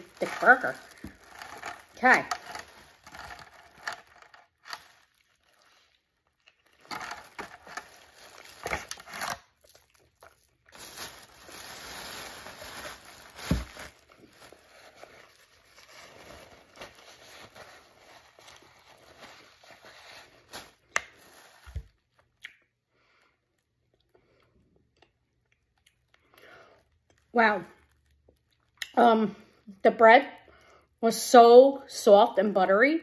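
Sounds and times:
paper bag rustling: 0:00.0 - 0:05.7, 0:06.8 - 0:09.4, 0:10.7 - 0:21.9.

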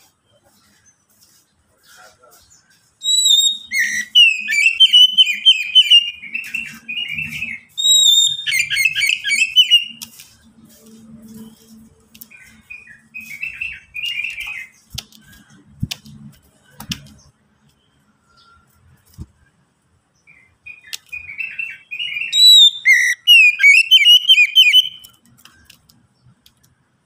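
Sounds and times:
bird singing whistles and chatter: 0:01.8 - 0:10.5, 0:12.2 - 0:15.6, 0:20.3 - 0:25.7.

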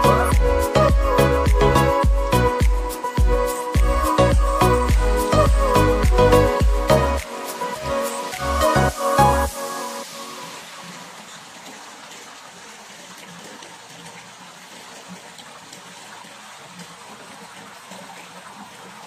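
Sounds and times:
water pouring into pool: 0:00.0 - 0:19.0
water lapping: 0:09.8 - 0:19.0.

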